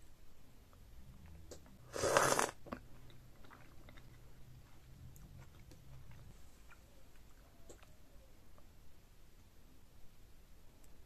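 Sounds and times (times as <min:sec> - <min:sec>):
soft chewing: 0:00.7 - 0:08.8
loud bite into food: 0:01.9 - 0:02.7.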